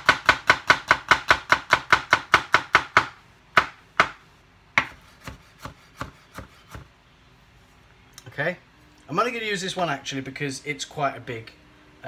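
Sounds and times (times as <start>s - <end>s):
knife chopping on wooden board: 0.0s - 4.2s, 4.8s - 6.9s.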